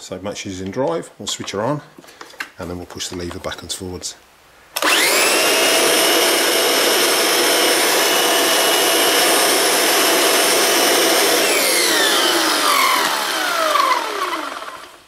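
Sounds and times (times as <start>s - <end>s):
vacuum motor whining: 4.8s - 15.0s.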